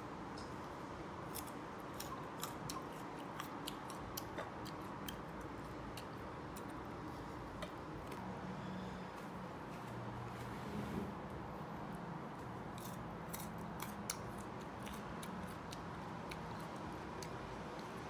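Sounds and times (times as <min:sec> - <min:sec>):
low room hum: 0:00.0 - 0:18.0
person crunching mango: 0:01.2 - 0:06.8, 0:12.4 - 0:18.0.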